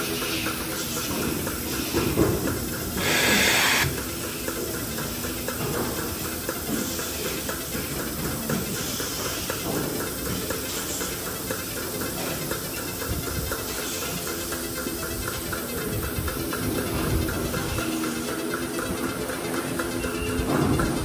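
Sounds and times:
milking units clicking: 0.0 - 21.0
vacuum hiss: 1.3 - 5.1
burst of hissing air: 3.0 - 4.0.

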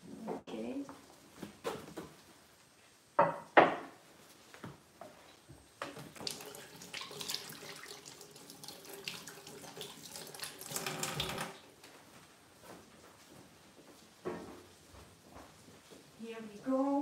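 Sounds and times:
tap water running into sink: 5.8 - 11.6
hands washing under water: 5.9 - 11.5.

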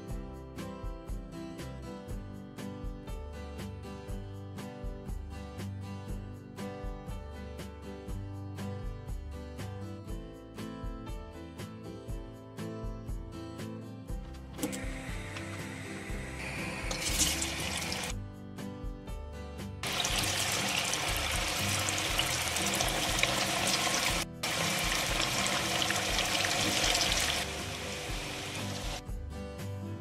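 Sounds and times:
background guitar music: 0.0 - 30.0
potatoes sizzling in hot oil: 15.2 - 18.1, 19.8 - 29.0.

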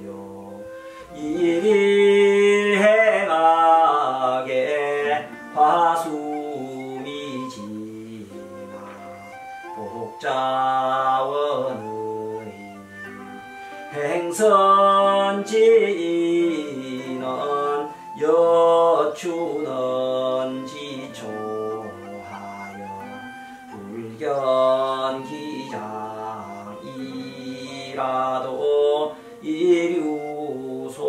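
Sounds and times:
people chanting text: 18.8 - 31.0.

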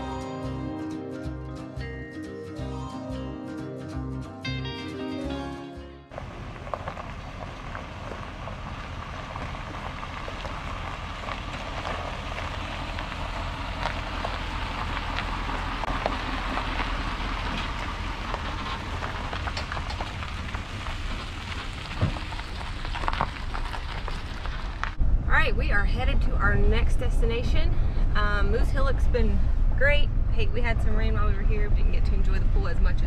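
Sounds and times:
tyres crunching on gravel: 6.1 - 25.0
low engine rumble: 6.1 - 33.0.

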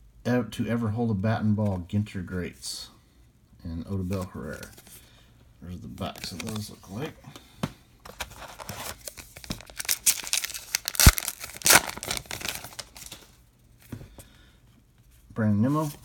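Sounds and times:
card pack wrapper tearing: 8.2 - 13.3.

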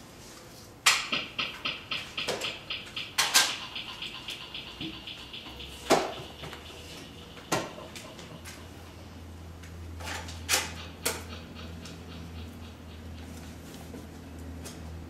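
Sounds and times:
steady low hum: 0.8 - 15.0
sparse percussion knocks: 1.0 - 8.8, 10.6 - 13.5.

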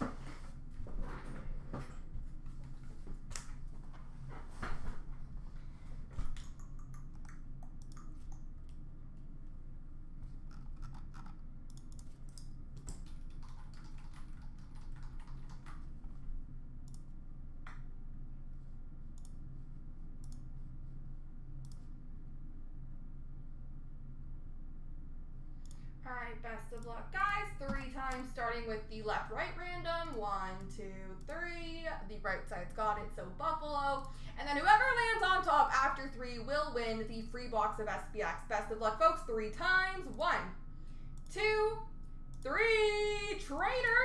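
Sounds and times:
steady low hum: 0.0 - 44.0
mouse clicks: 6.4 - 8.5
computer keyboard typing: 10.5 - 15.9.

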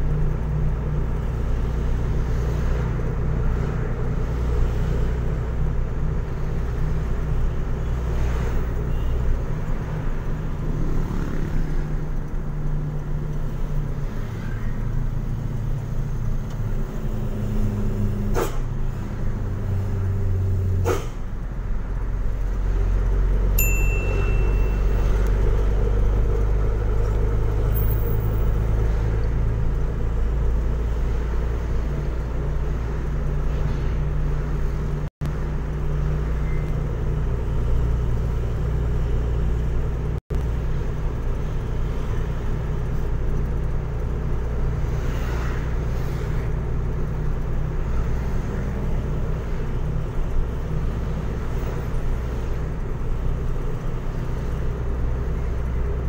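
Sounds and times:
truck engine shifting gears: 14.8 - 56.0.

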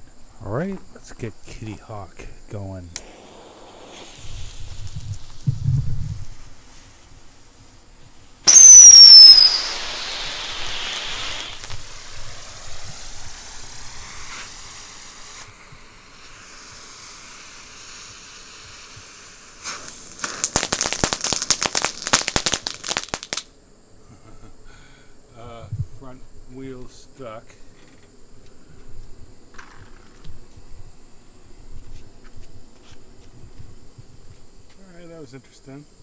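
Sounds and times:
firework whistle: 3.0 - 6.4, 8.4 - 23.4
firework crackling: 3.0 - 23.5
fizzing spark hiss: 3.0 - 23.5.

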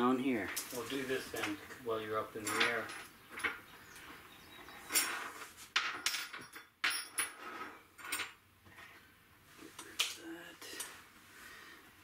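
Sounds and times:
metal tools knocking and clattering: 2.4 - 3.6, 4.8 - 8.4.

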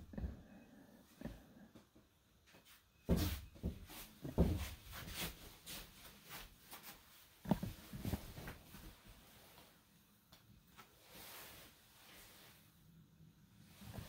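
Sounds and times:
soft footsteps on mats: 1.2 - 9.8.

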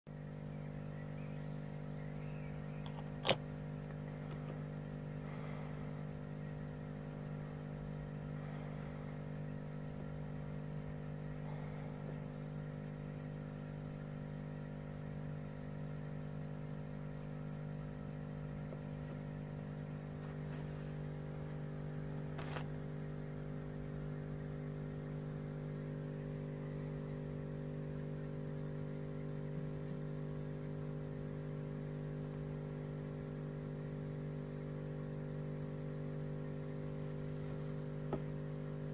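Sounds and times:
steady machine hum: 0.1 - 38.9
sharp click: 2.8 - 3.4.

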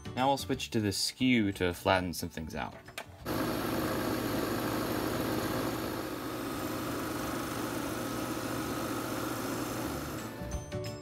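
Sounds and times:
wood lathe humming: 3.3 - 10.5.

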